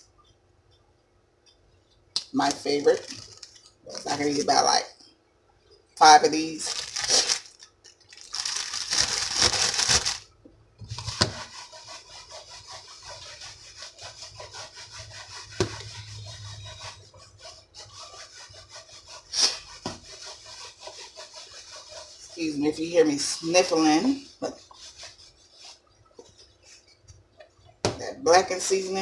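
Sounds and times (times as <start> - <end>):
food shaken in plastic tub: 2.4 - 4.7, 6.3 - 10.3, 10.9 - 14.8.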